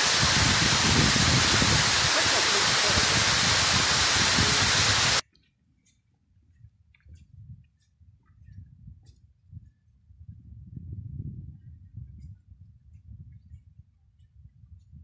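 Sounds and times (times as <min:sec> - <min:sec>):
waterfall rushing: 0:00.0 - 0:05.2.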